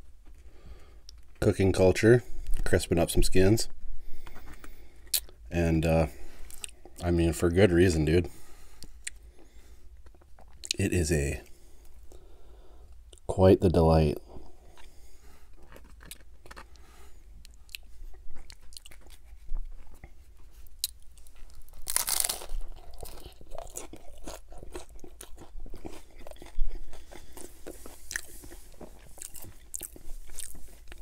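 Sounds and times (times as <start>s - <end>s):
crackly chewing: 6.2s - 7.6s, 8.3s - 12.3s, 14.2s - 31.0s
crunching taco bite: 14.6s - 31.0s.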